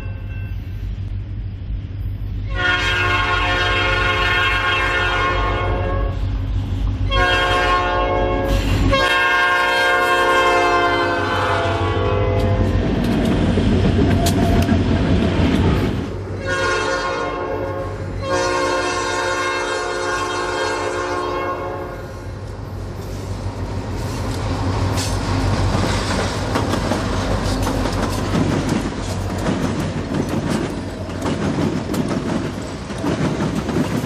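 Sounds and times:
train engine and wheels rumbling: 0.0s - 34.0s
locomotive air horn: 2.4s - 6.3s, 7.0s - 12.8s, 16.4s - 22.3s.

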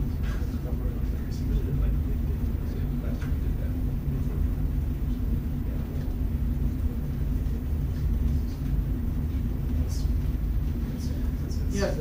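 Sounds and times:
faint even hum: 0.0s - 12.0s
low room rumble: 0.0s - 12.0s.

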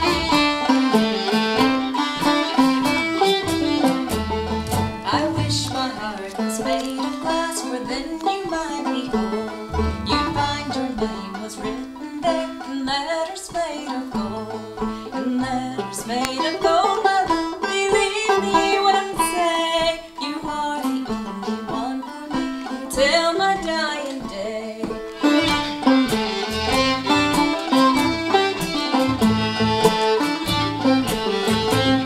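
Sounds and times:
woman singing: 0.0s - 0.6s, 5.0s - 25.1s
quick banjo notes: 0.0s - 32.0s
string band playing: 0.0s - 32.0s.

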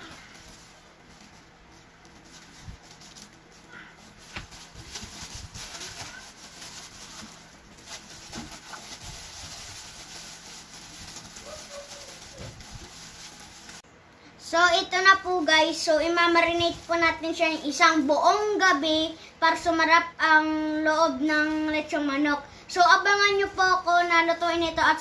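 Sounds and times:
plastic glove crinkle: 0.0s - 13.8s, 15.0s - 18.8s.

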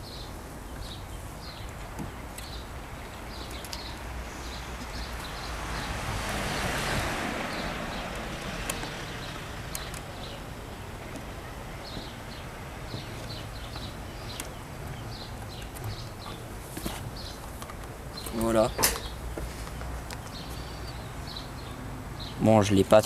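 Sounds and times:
wind on microphone: 0.0s - 17.4s
small birds chirping: 0.0s - 23.0s.

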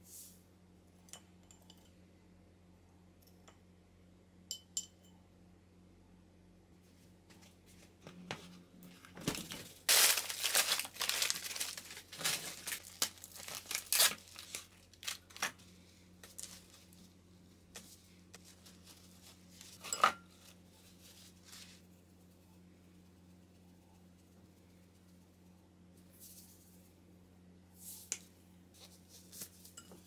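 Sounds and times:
plastic packaging crinkling: 9.4s - 15.6s.

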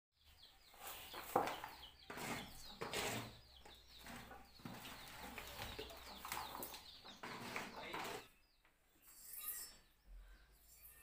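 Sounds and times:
small birds chirping: 0.2s - 11.0s
basket scraping on earth floor: 0.8s - 8.3s.

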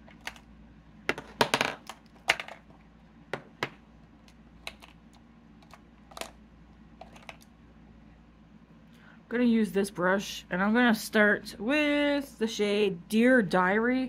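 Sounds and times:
makeup items clicking and clacking: 4.3s - 5.0s, 5.6s - 6.4s, 7.0s - 7.5s.

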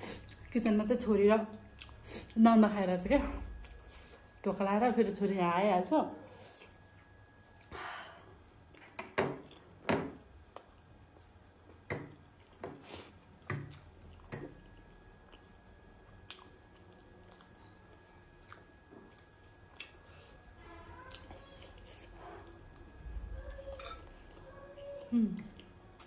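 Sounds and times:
wet chewing: 1.7s - 2.4s, 13.6s - 20.0s
fork scraping a plate: 23.7s - 24.1s.

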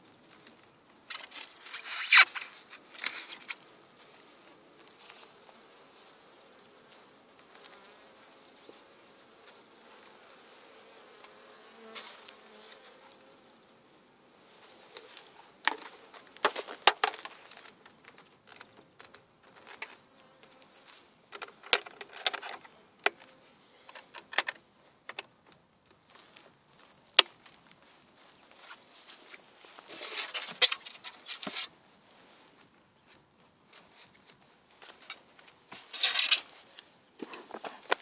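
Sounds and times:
scraping and rustling: 27.4s - 32.7s, 33.7s - 38.0s.

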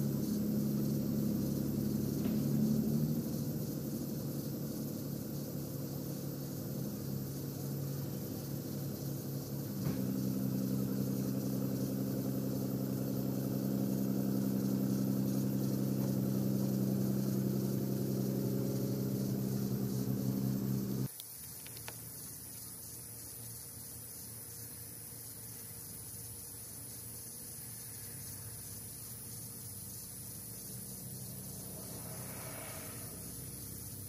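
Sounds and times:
vehicle engine idling: 0.0s - 21.1s, 29.6s - 34.0s.

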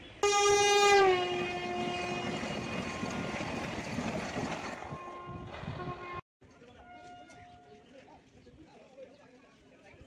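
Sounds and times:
train horn blast: 0.2s - 2.9s, 4.8s - 6.2s
train rumbling past: 0.2s - 6.2s.

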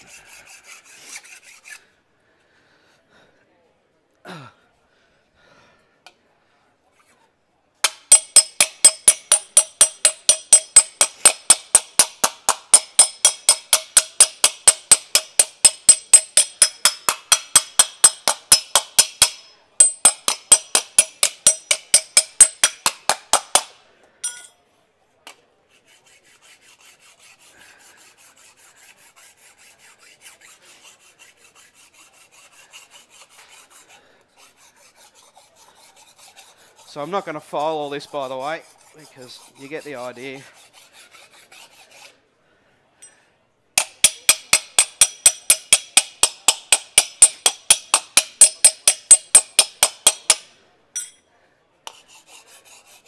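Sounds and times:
file rasping on metal: 0.0s - 1.9s, 7.8s - 23.7s, 25.7s - 42.2s, 43.8s - 51.1s, 51.8s - 53.0s
hammer striking aluminium panel: 7.8s - 24.5s, 43.8s - 51.2s.

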